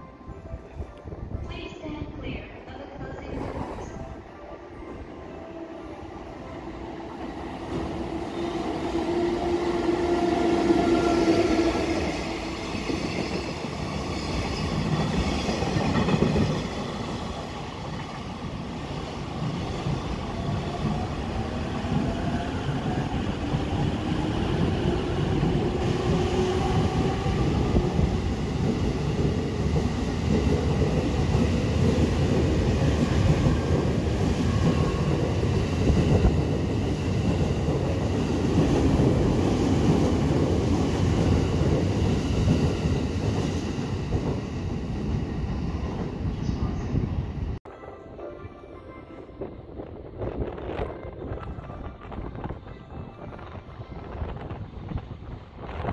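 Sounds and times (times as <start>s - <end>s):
freight train wheels rumbling: 6.2s - 47.6s.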